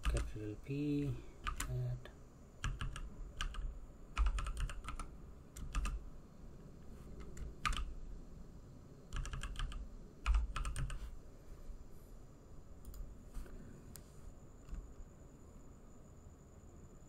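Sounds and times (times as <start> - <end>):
keyboard keystrokes: 1.4 - 1.8, 2.6 - 6.0, 7.2 - 7.9, 9.1 - 11.0.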